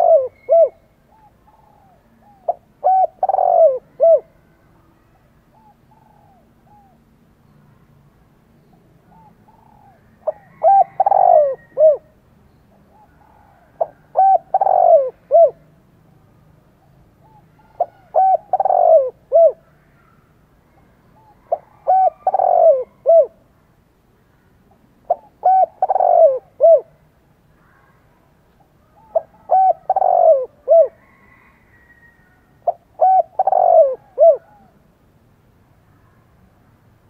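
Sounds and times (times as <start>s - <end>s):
dove cooing: 0.0s - 4.4s, 5.5s - 7.0s, 9.0s - 12.1s, 12.9s - 15.6s, 17.2s - 19.7s, 21.2s - 23.4s, 25.1s - 27.0s, 28.8s - 34.8s.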